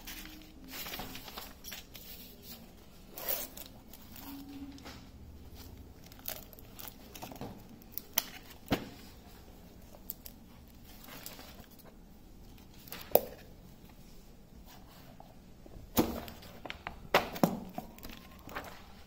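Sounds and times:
paper covers rustling and crinkling: 0.0s - 13.1s, 16.0s - 19.0s.

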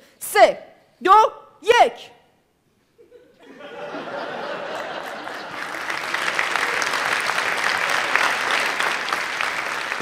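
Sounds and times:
studio audience applauding: 4.8s - 10.0s.

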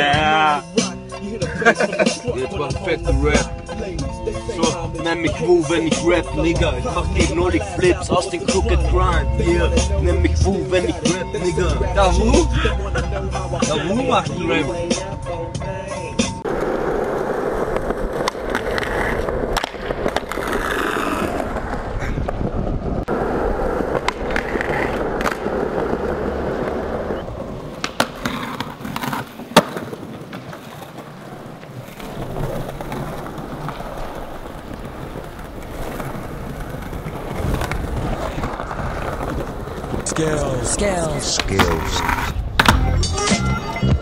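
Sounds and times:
skateboard wheels rolling on pavement: 0.8s - 44.0s
skateboard trucks grinding on ledge: 16.4s - 43.8s
skateboard popping and landing: 16.5s - 43.9s.

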